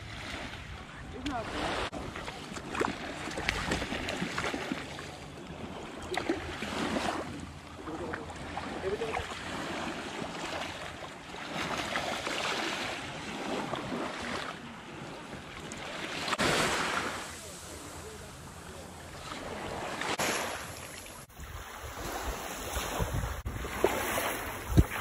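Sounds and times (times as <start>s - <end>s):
wind rumbling on microphone: 21.2s - 25.0s.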